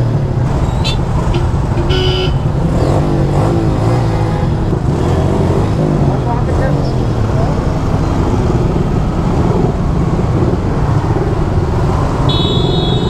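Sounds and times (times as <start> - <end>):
short vehicle horn beep: 0.8 - 2.4, 12.3 - 13.0.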